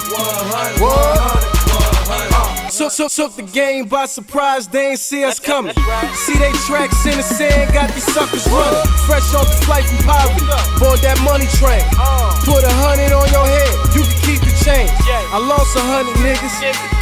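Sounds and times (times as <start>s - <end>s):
rapping over a beat: 0.0s - 17.0s
deep held bass notes: 0.8s - 2.7s, 5.8s - 16.4s.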